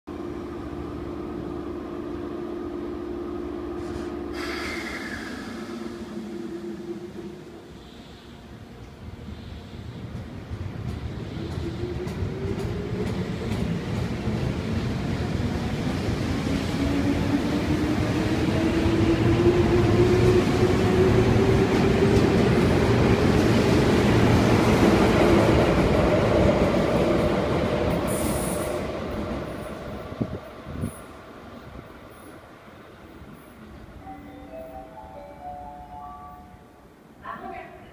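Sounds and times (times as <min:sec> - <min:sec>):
train electrical hum: 0:00.1 - 0:15.6
sudden air hiss: 0:03.8 - 0:08.6.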